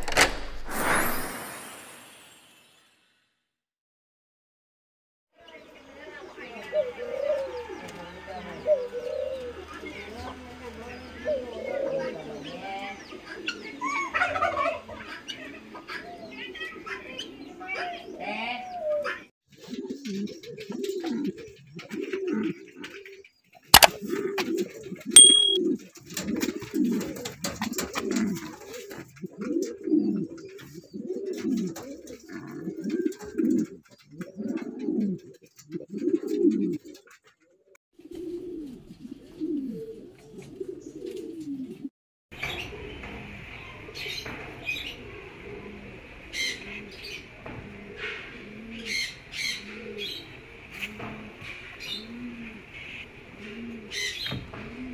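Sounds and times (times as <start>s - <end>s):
pigeons cooing: 6.2s - 54.9s
sharp click: 25.2s - 25.6s
short chirps: 25.2s - 25.6s.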